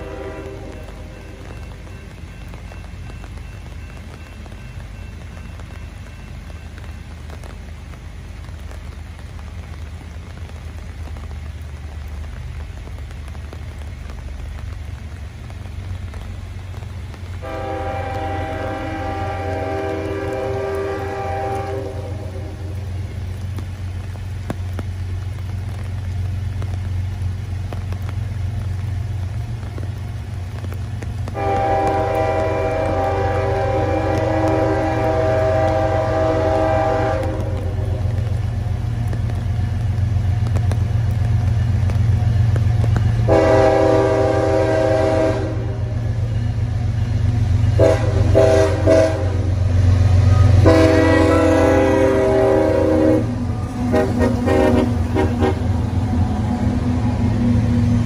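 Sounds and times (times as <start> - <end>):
train air horn blasts: 0.0 - 1.5, 17.4 - 22.9, 31.3 - 38.3, 43.2 - 46.1, 47.7 - 55.8
diesel engines rumbling: 0.0 - 58.0.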